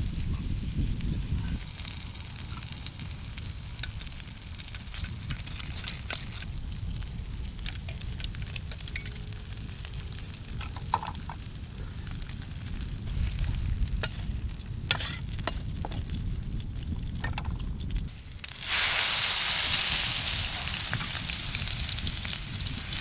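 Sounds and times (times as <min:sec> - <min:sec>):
fish sizzling in a pan: 0:00.1 - 0:23.0.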